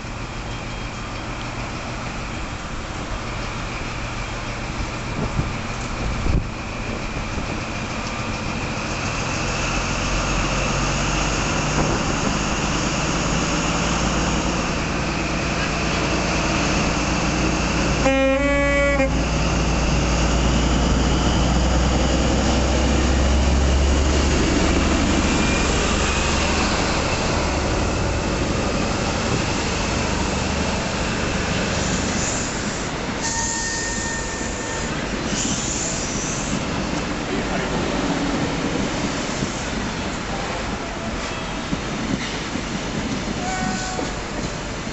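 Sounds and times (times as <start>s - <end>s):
diesel train engine rumble: 0.0s - 44.9s
train horn blast: 18.0s - 19.3s, 33.2s - 34.9s, 43.4s - 44.2s.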